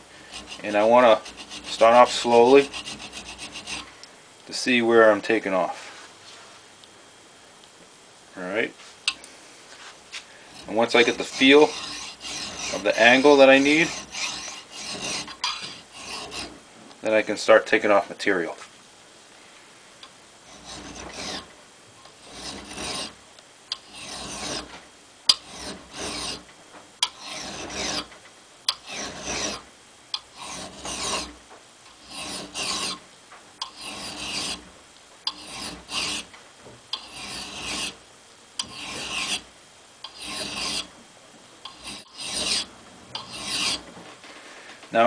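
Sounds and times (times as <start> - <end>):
file rasping on steel: 0.2 - 3.9, 10.5 - 16.6, 20.5 - 21.5, 22.1 - 28.1, 28.7 - 29.6, 30.2 - 33.0, 33.6 - 34.7, 35.3 - 36.3, 36.9 - 38.0, 38.6 - 40.9, 41.6 - 43.9
file clicking on metal: 0.3 - 3.9, 10.5 - 16.6, 20.5 - 24.7, 25.3 - 28.1, 28.7 - 29.6, 30.2 - 33.0, 33.6 - 34.6, 35.3 - 36.3, 36.9 - 38.0, 38.6 - 39.4, 40.0 - 40.9, 41.6 - 43.8.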